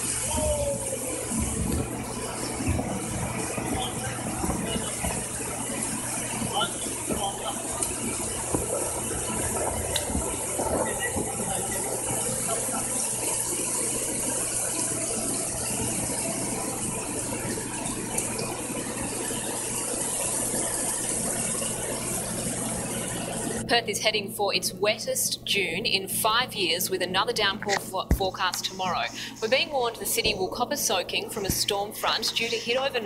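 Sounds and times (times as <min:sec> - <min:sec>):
floodwater rushing down street: 0:00.0 - 0:23.6.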